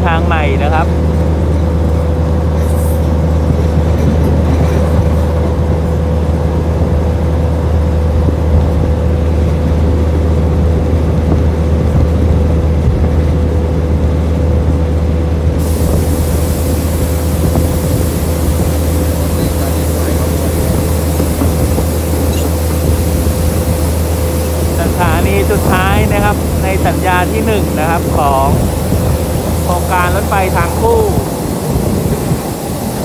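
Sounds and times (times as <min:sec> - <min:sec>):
train rumble and rush: 0:00.0 - 0:33.0
bright hiss: 0:15.6 - 0:33.0.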